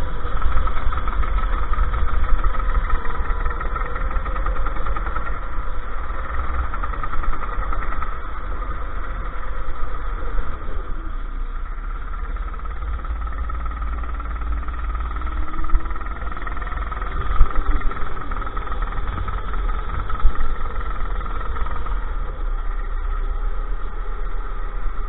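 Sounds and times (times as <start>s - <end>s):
go-kart engine running: 0.0s - 25.0s
wind and vibration rumble: 0.0s - 25.0s.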